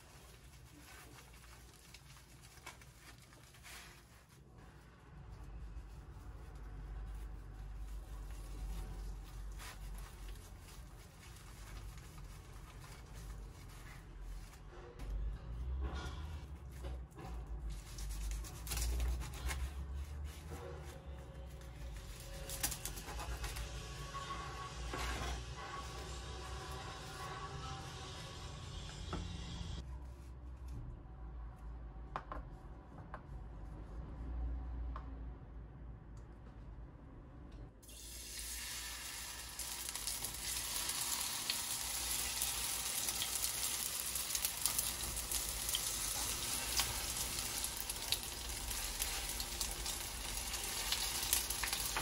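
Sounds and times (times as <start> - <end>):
seaweed sheet rustling: 0.0 - 4.4, 5.8 - 14.6
soft rubbing: 0.0 - 15.0.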